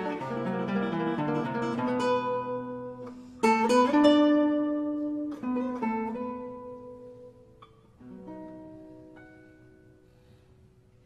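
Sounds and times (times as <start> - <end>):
acoustic guitar plucked notes: 0.0 - 11.0.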